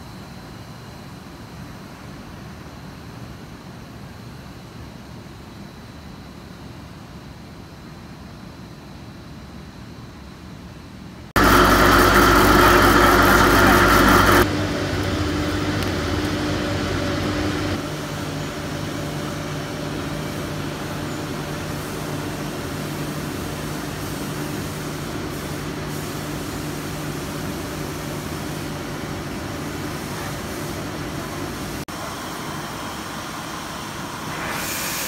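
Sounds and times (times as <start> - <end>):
production line machinery hum: 11.4 - 35.0.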